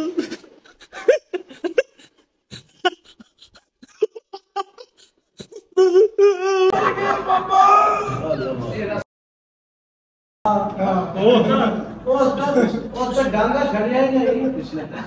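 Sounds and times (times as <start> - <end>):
man laughing: 0.0 - 8.0
wavering vocal cry: 0.0 - 8.6.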